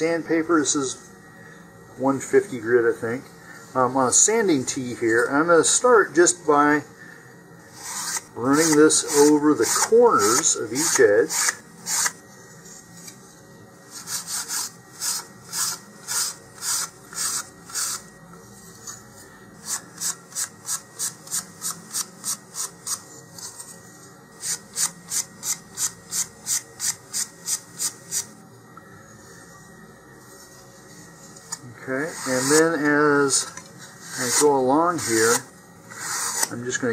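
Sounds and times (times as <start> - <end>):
sandpaper rubbing wood: 7.8 - 12.2, 14.0 - 18.0, 32.1 - 32.8, 34.0 - 36.5.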